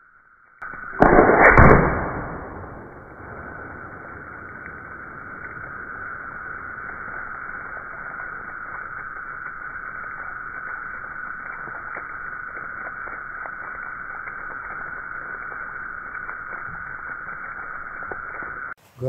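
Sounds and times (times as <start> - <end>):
steady hiss: 0.6 - 19.0
air rifle shot: 1.0 - 5.6.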